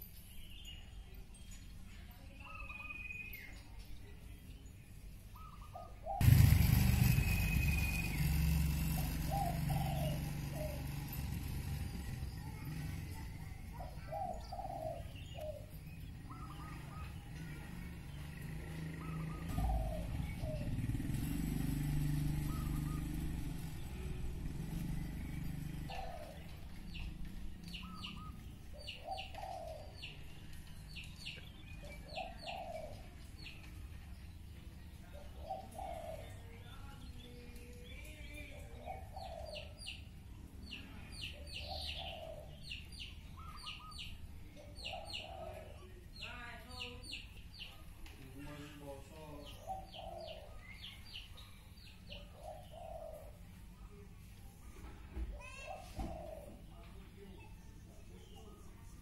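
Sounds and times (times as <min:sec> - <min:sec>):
small birds chirping: 0:00.0 - 0:59.0
dove cooing: 0:05.4 - 0:27.0, 0:27.7 - 0:30.3, 0:31.6 - 0:33.2, 0:35.1 - 0:36.5, 0:38.5 - 0:40.1, 0:40.9 - 0:45.9, 0:49.4 - 0:51.5, 0:52.1 - 0:53.9, 0:55.4 - 0:56.8.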